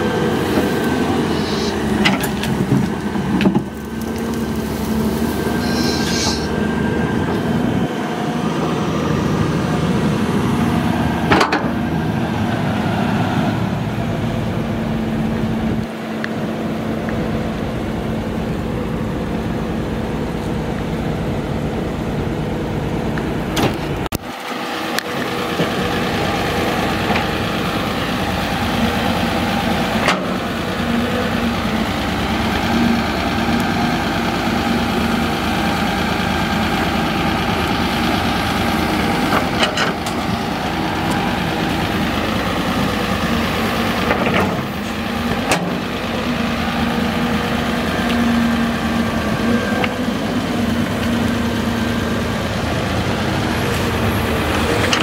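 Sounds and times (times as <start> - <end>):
excavator diesel engine running: 0.0 - 55.0.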